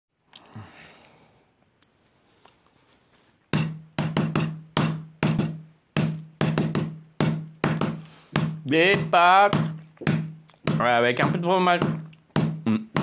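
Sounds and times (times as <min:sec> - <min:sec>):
drum hits with low ringing: 0:03.6 - 0:13.0.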